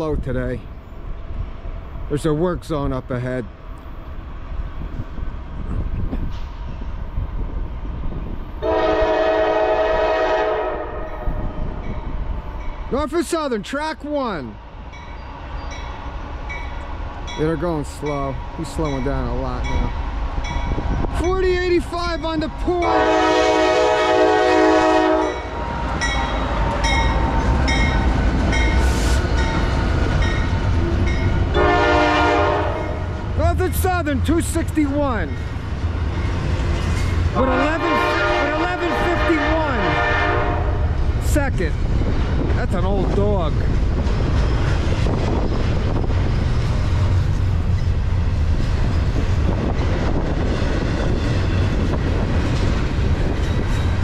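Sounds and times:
train rumble: 0.0 - 54.0
locomotive air horn blast: 8.6 - 11.5, 22.8 - 25.5, 31.5 - 33.0, 37.4 - 40.9
locomotive bell ringing: 14.4 - 23.2, 25.2 - 31.6.

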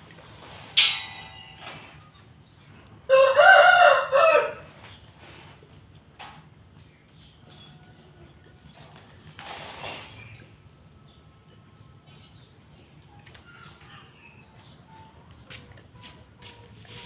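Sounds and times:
sharp clink: 0.8 - 1.8
rooster crowing: 3.1 - 4.7.

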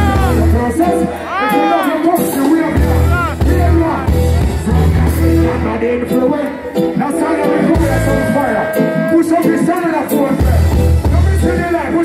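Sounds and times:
heavy bass: 0.0 - 1.1, 2.5 - 6.2, 7.2 - 11.9
live reggae band playing: 0.0 - 12.0
man singing into a microphone: 0.0 - 12.0.

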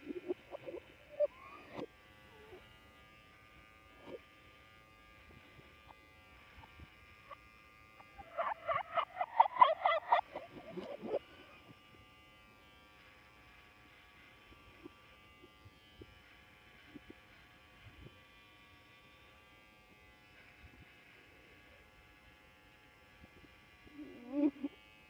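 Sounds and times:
electric shaver buzzing: 0.0 - 25.0.

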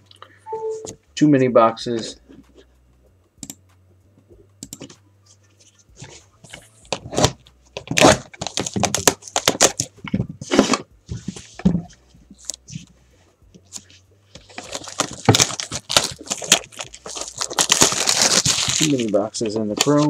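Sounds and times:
packaging crinkling and tearing: 6.9 - 9.9, 14.4 - 20.0.

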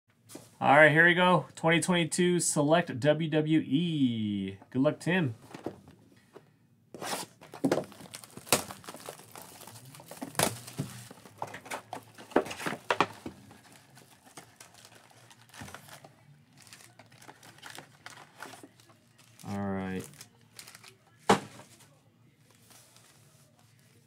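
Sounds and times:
plastic shrink-wrap crackling: 7.8 - 11.7, 13.5 - 21.0.

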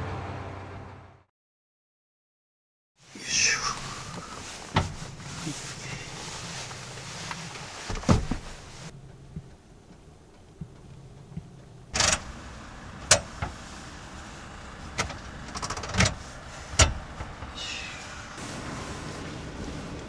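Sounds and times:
sharp clunks and clicks: 10.3 - 12.3.

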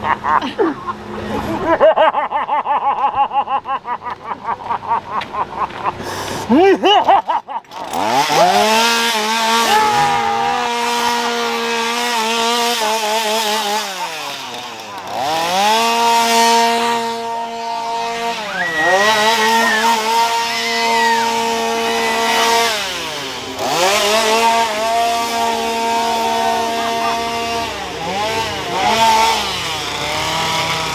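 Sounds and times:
chainsaw revving: 7.1 - 30.9.

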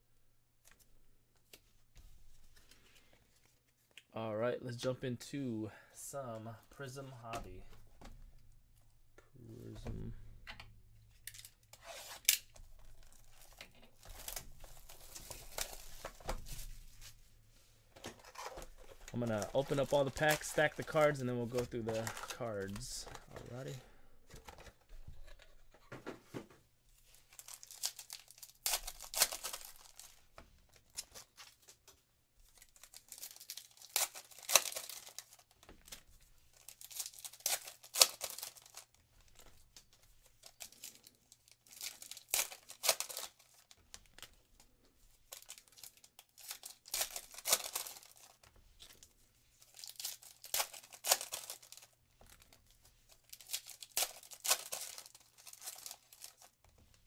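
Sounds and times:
foil wrappers tearing and crinkling: 11.3 - 16.9, 18.2 - 23.7, 27.2 - 31.8, 32.5 - 39.6, 40.3 - 44.3, 45.3 - 56.7.

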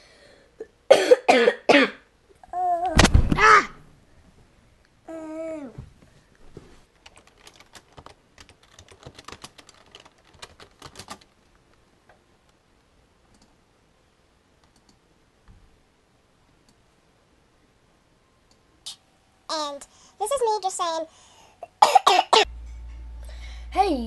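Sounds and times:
computer mouse clicks: 13.3 - 13.6, 14.6 - 15.0.

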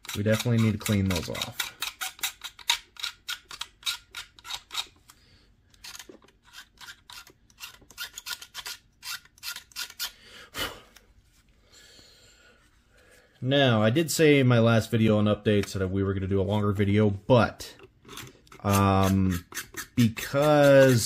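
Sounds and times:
metal file rasping plastic: 0.0 - 5.0, 5.7 - 10.2, 18.0 - 21.0.

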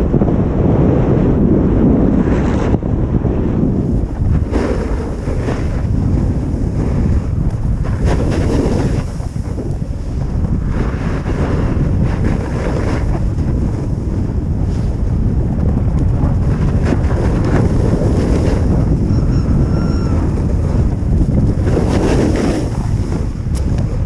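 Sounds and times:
wind buffeting microphone: 0.0 - 24.0
edges scraping on packed snow: 4.4 - 6.1, 7.9 - 9.5, 16.8 - 18.8, 21.6 - 23.7.

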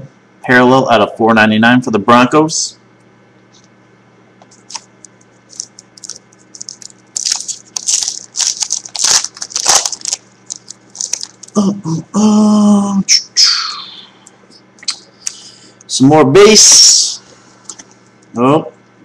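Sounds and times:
foil wrapper crinkling and tearing: 4.5 - 11.6.

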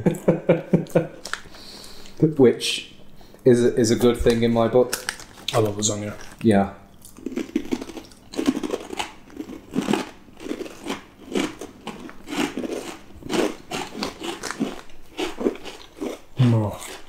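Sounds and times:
crunchy chewing of crisps: 1.2 - 2.2, 4.9 - 17.0.

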